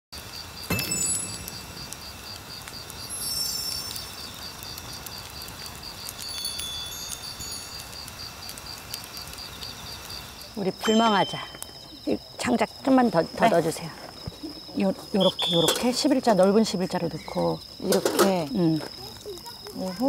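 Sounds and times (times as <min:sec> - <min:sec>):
crickets chirping: 0:00.2 - 0:20.0
high chime tinkles: 0:00.7 - 0:02.2, 0:03.0 - 0:04.4, 0:06.2 - 0:08.0, 0:10.8 - 0:12.1.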